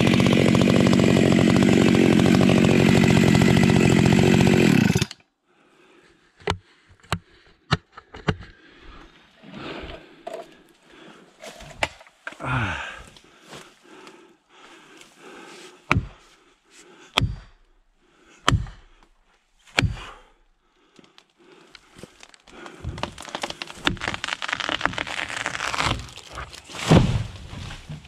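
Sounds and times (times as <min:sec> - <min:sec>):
axe striking wedge: 0:17.2 - 0:17.6, 0:18.5 - 0:18.8, 0:19.7 - 0:20.1
branches snapping: 0:20.9 - 0:28.0
wood fibres tearing: 0:20.9 - 0:28.0.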